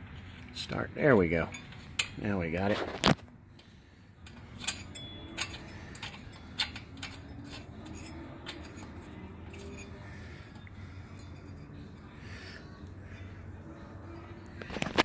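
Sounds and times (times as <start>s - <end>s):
small metallic clicks: 4.2s - 8.9s.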